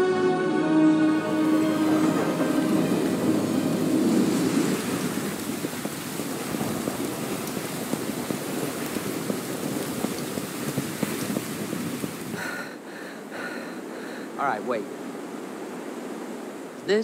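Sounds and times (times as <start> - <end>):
music: 0.0 - 5.2
rain patter: 1.2 - 17.0.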